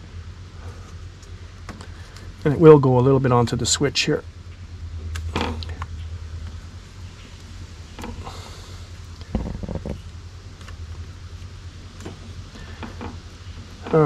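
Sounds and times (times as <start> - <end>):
steady low hum: 0.0 - 14.0
electrical tape rustling: 4.5 - 14.0
dull knocks: 9.3 - 10.1.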